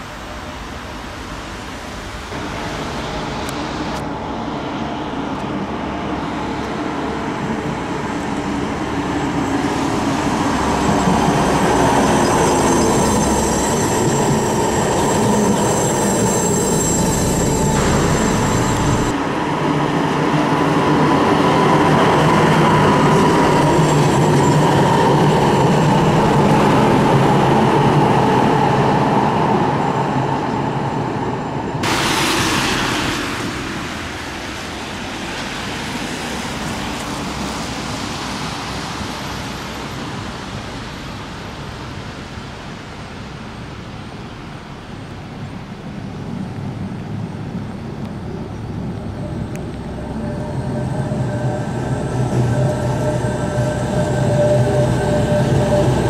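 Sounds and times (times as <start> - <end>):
tram wheels rumbling on track: 0.0 - 42.0, 45.9 - 56.0
high wheel squeal: 9.4 - 19.2, 22.2 - 28.8, 49.9 - 56.0.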